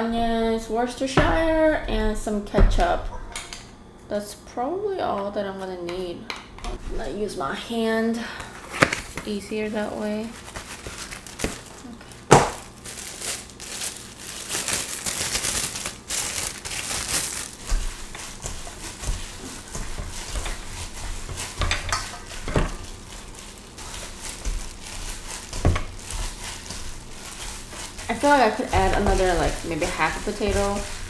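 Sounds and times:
plastic glove crinkling: 0:08.9 - 0:31.0
wet squishing of kneaded meat: 0:12.7 - 0:31.0.

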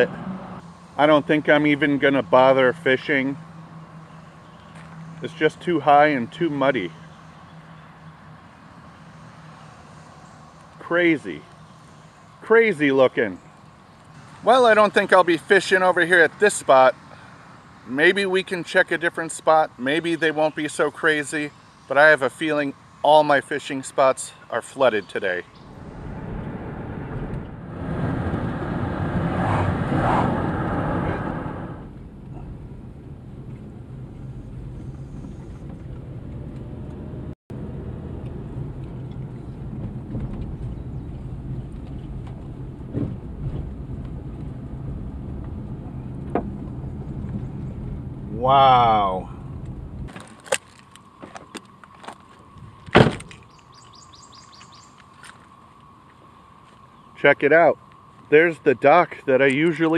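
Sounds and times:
bird chirping: 0:03.4 - 0:05.4, 0:06.6 - 0:10.7, 0:53.4 - 0:55.3, 0:56.8 - 0:57.2
car road noise on wet road: 0:25.6 - 0:48.8
car door shutting: 0:52.8 - 0:53.4.

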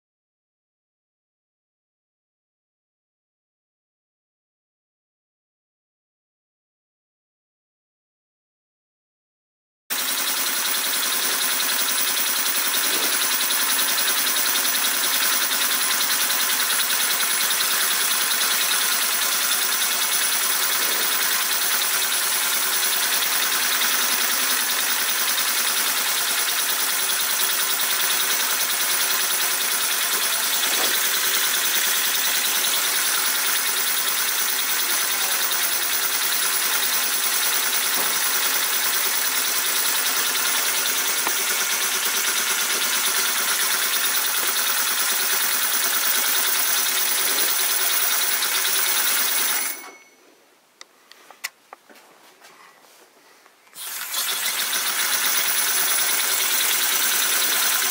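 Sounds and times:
small steam engine running: 0:09.9 - 0:50.0, 0:53.8 - 0:57.9.

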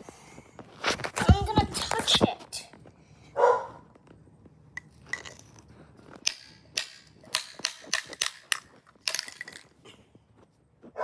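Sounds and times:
bone clicking on concrete: 0:04.8 - 0:09.8.

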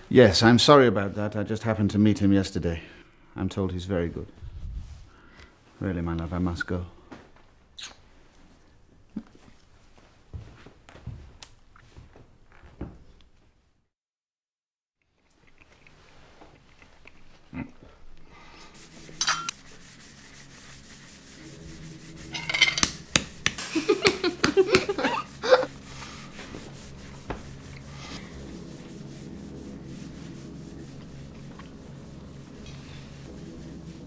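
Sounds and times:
cutlery clinking on plates: 0:19.2 - 0:19.5
cutlery scraping over toast: 0:19.2 - 0:19.6, 0:22.3 - 0:23.1.

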